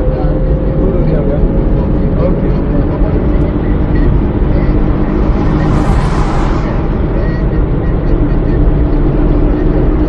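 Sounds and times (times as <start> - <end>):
car road and engine rumble: 0.0 - 10.0
rushing noise: 3.8 - 8.2.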